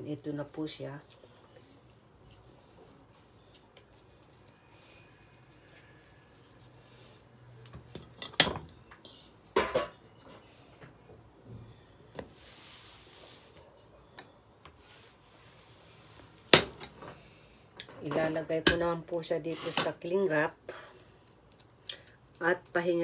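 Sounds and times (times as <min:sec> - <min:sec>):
dishes and utensils clinking: 0:07.8 - 0:08.7, 0:09.5 - 0:10.5.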